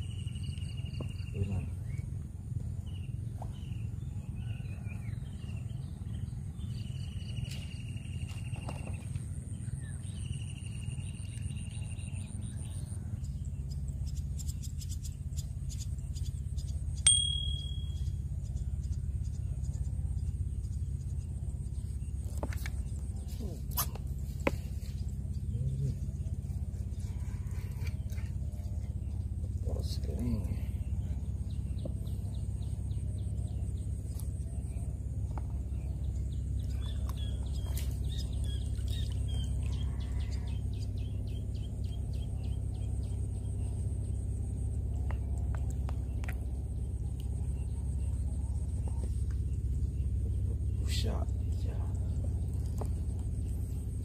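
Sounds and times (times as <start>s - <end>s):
small birds chirping: 0.0s - 54.0s
steady low rumble: 0.0s - 54.0s
sharp metallic ping: 17.0s - 18.2s
thin high tone: 17.1s - 18.2s.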